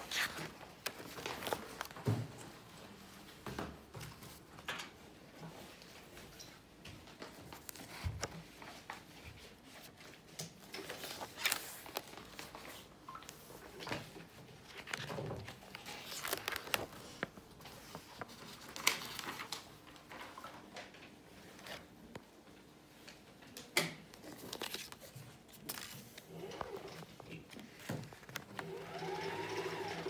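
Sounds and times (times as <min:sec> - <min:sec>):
sketchbook pages rustling: 0:00.0 - 0:02.2, 0:03.9 - 0:04.7, 0:07.1 - 0:20.1, 0:21.3 - 0:22.3, 0:24.1 - 0:28.8.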